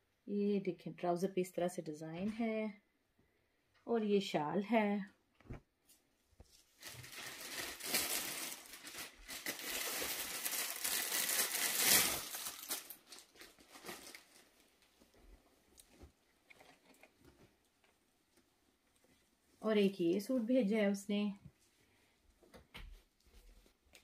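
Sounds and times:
plastic wrapping crinkling and rustling: 6.4s - 19.6s.

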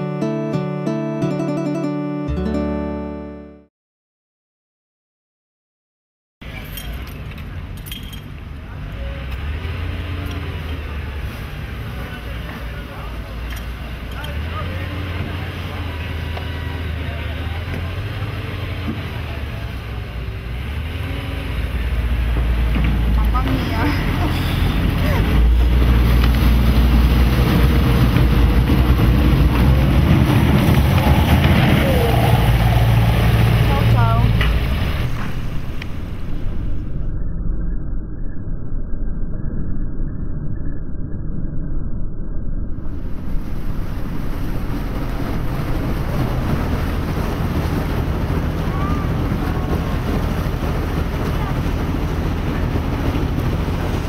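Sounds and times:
boat engine humming: 0.0s - 3.4s, 6.9s - 37.3s, 42.8s - 54.0s
water rushing past hull: 9.2s - 37.0s, 42.8s - 54.0s
wind buffeting microphone: 22.2s - 37.2s, 42.7s - 54.0s.

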